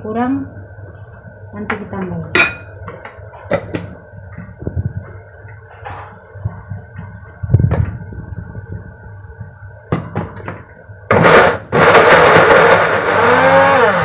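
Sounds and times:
electric blender chopping: 11.1 - 14.0.

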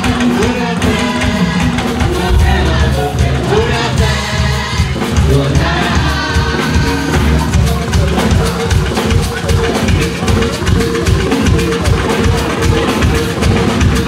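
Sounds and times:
drums and percussion beat: 0.0 - 14.0
held instrumental note: 1.3 - 4.3.

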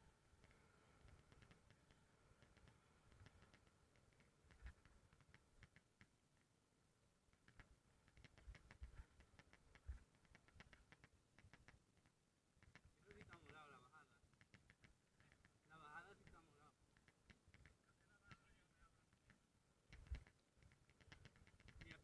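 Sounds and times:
mountain bike clicking: 0.4 - 6.1, 19.1 - 22.0.

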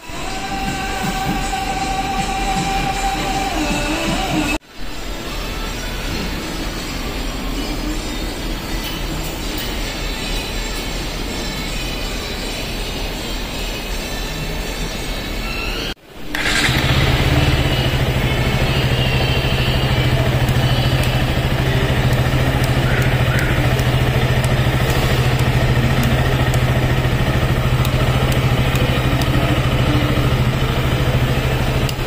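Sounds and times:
motorcycle engine idling: 16.2 - 32.0.

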